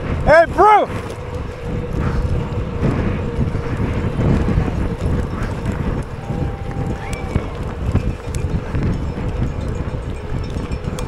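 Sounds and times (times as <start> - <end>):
bicycle tyres rumbling on road: 0.0 - 11.0
wind buffeting microphone: 0.0 - 11.0.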